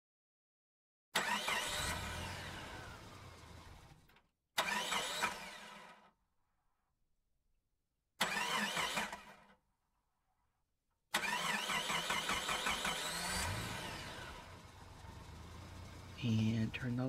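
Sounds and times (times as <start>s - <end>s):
car engine starting and revving: 1.2s - 6.1s, 8.2s - 9.5s, 11.1s - 17.0s.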